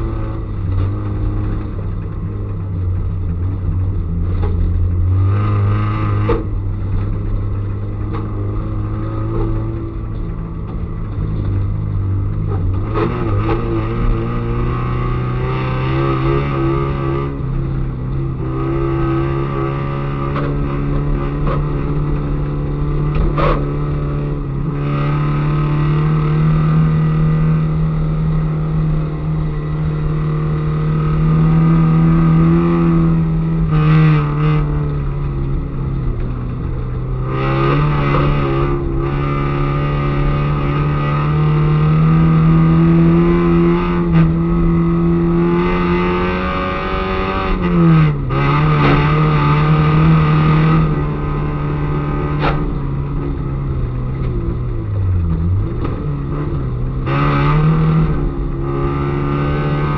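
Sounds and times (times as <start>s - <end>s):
car engine revving hard: 37.0s - 59.9s.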